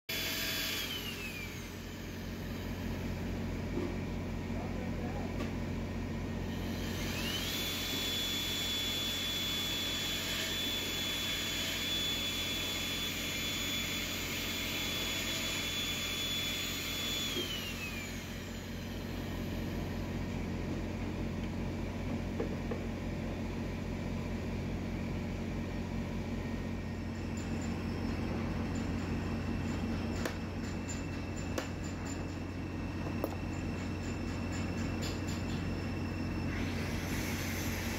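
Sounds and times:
drill motor whine: 0.1s - 3.5s, 6.3s - 20.6s, 26.4s - 37.9s.

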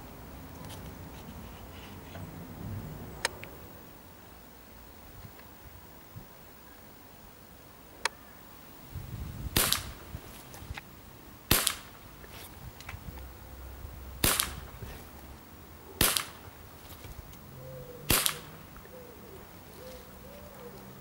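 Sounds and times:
air pistol shots: 9.6s - 10.0s, 11.5s - 12.0s, 14.2s - 14.8s, 16.0s - 16.5s, 18.1s - 18.6s.

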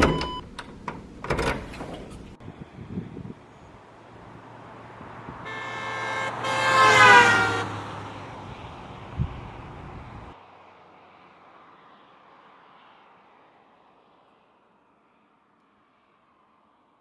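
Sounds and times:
street traffic hum: 0.0s - 17.0s
car horn honking: 5.4s - 8.1s.

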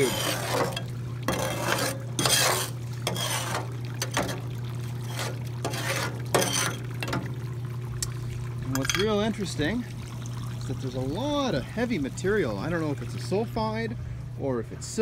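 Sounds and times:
metal scoop scraping wet sand: 0.0s - 6.9s.

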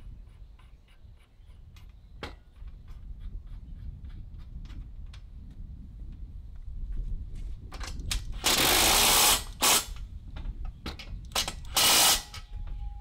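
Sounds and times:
cordless power tool bursts: 8.4s - 10.0s, 11.4s - 12.4s.

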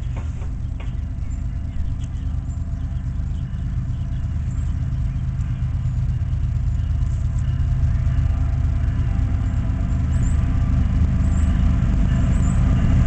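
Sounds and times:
diesel locomotive engine rumble: 0.0s - 13.0s.

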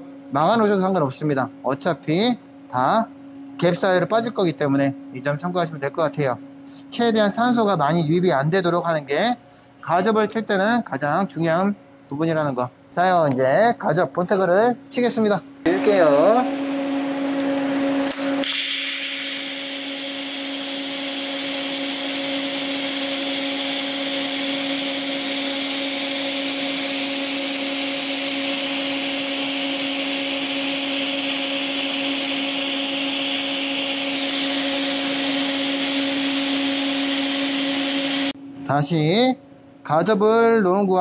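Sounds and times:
steady hum: 0.0s - 41.0s
welding arc hissing: 18.0s - 38.4s.

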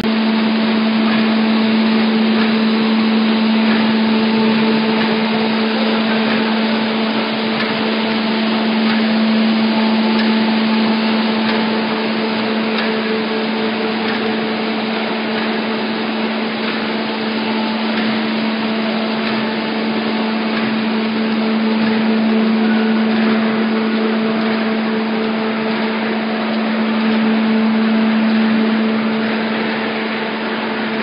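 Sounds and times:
motor hum: 0.0s - 31.0s
mechanical clatter: 0.1s - 31.0s.

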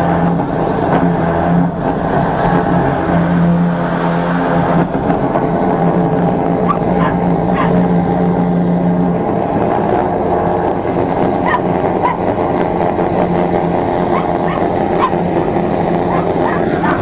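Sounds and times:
sewer jetter engine running: 0.0s - 17.0s
dog yelping and barking: 6.7s - 7.9s, 11.4s - 12.3s, 14.1s - 17.0s.

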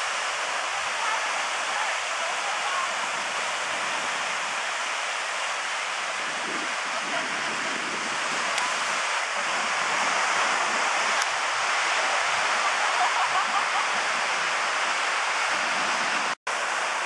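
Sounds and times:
ocean surf breaking on beach: 0.0s - 17.0s.

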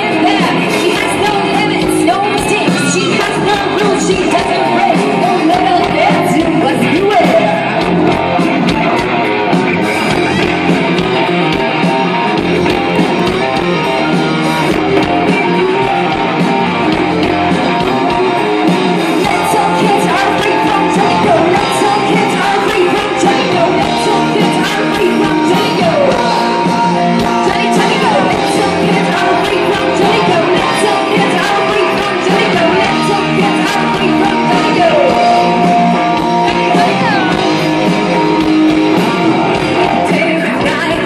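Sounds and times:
woman singing into a microphone: 0.0s - 7.8s, 19.2s - 37.5s, 39.8s - 41.0s
electric guitars: 0.0s - 41.0s.

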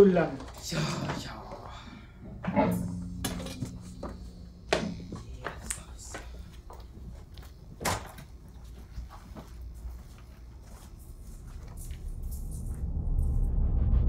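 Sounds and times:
low steady hum: 0.5s - 14.0s.

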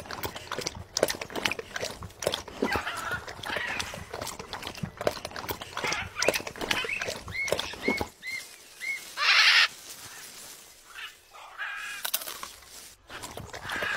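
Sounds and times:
macaw harsh squawk: 6.8s - 10.2s
macaw pitched call: 8.2s - 9.8s.

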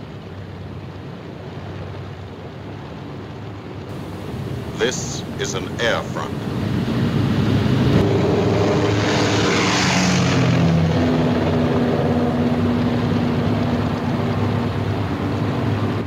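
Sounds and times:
propeller aircraft engines droning: 3.8s - 16.0s
aircraft passing rushing hiss: 3.9s - 16.0s.

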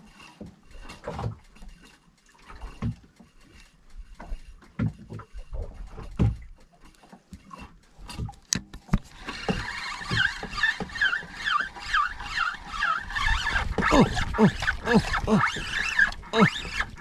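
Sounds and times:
fishing reel gears whirring: 9.0s - 17.0s.

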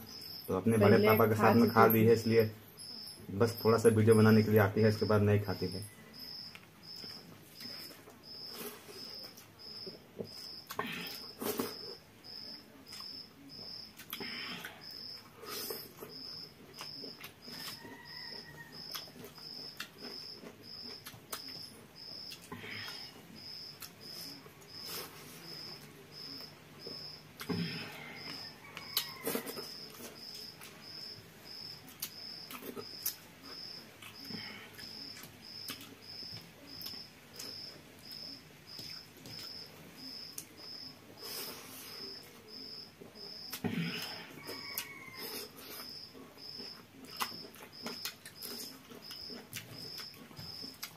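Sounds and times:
cricket chirping: 0.0s - 50.9s
chewing and lip smacking: 15.6s - 22.5s, 31.9s - 39.6s, 44.4s - 50.9s.

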